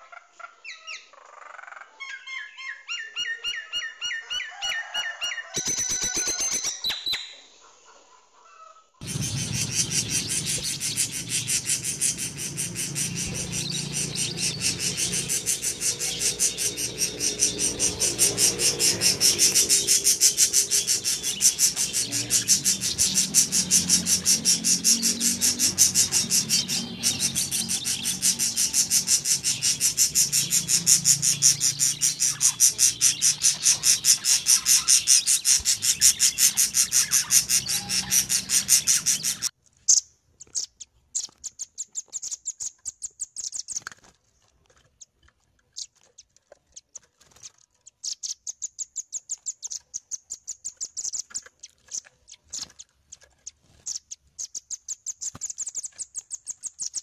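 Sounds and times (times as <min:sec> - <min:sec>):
rapid high-pitched bird chirps: 0:05.4 - 0:07.5, 0:09.0 - 0:43.8, 0:45.8 - 0:57.0
short bursts of bird chirps: 0:05.5 - 0:07.5, 0:09.0 - 0:39.5.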